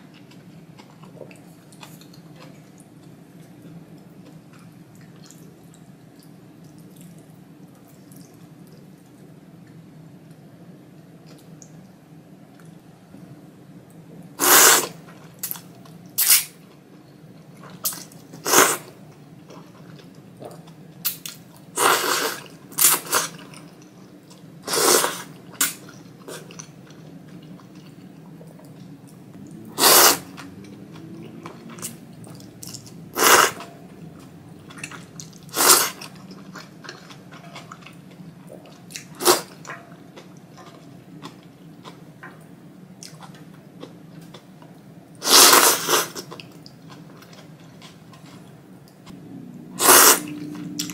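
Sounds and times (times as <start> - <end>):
slurping noodles: 14.4 - 15.0, 21.8 - 23.4, 24.6 - 25.4, 29.6 - 33.7, 34.7 - 36.2, 45.2 - 46.3, 49.8 - 50.9
quiet chewing: 30.3 - 44.8, 45.8 - 49.1.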